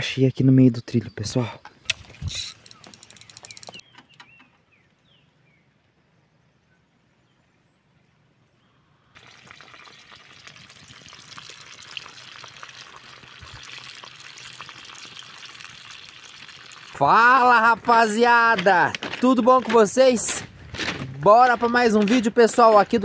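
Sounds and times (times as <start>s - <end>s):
fish frying in hot oil: 9.2s - 17.0s.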